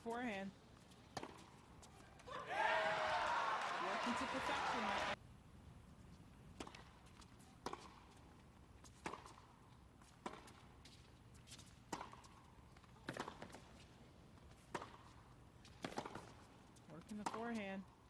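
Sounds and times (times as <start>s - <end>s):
tennis ball struck by rackets: 1.1s - 1.7s, 6.6s - 8.1s, 8.9s - 9.6s, 10.2s - 11.0s, 11.9s - 13.8s, 14.6s - 17.6s.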